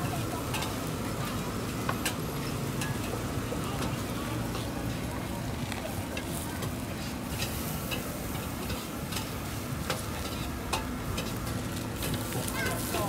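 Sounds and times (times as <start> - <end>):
meat sizzling on a grill: 0.0 - 13.0
skewers clicking on metal grate: 6.1 - 13.0.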